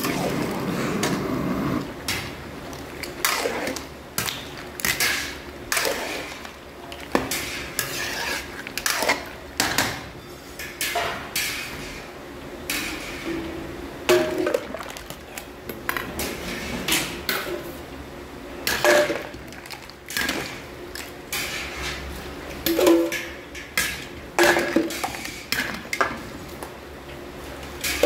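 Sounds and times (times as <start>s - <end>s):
metal utensils scraping a metal pan: 7.3s - 9.0s.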